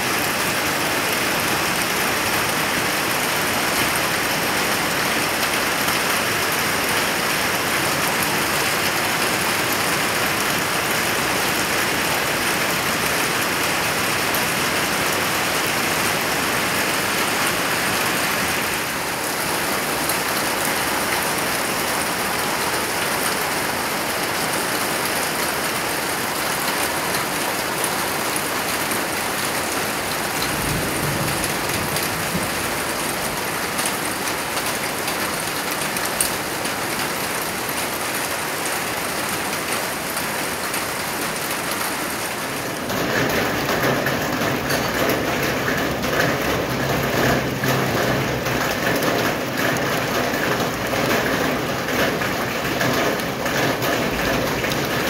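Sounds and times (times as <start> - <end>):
heavy rain falling: 0.0 - 55.0.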